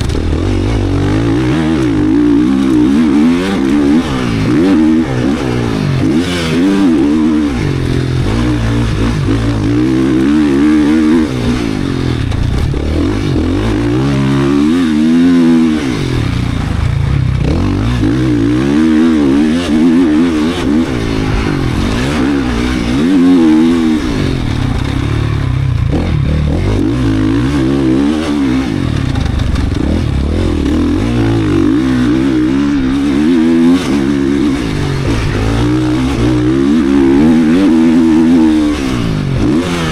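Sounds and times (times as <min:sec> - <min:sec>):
motocross bike engine revving: 0:00.0 - 0:39.9.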